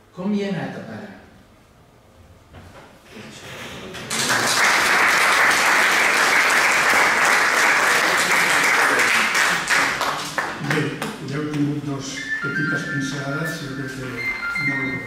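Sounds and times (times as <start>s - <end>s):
audience applauding: 3.9s - 11.2s.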